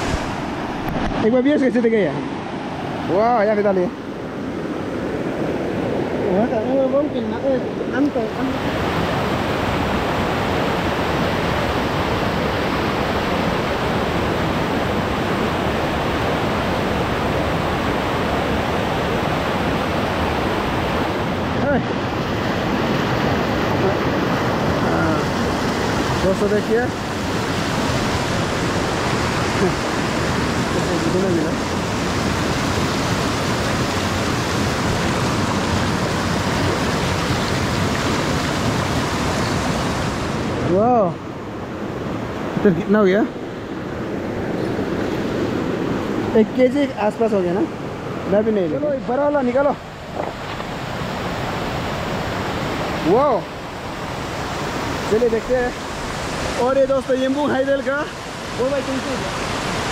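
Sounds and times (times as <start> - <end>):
river water rushing: 0.0 - 59.9.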